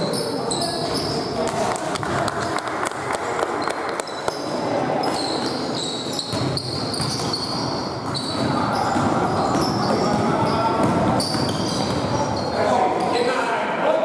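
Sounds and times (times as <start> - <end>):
ball bouncing on hard court: 6.2 - 12.2.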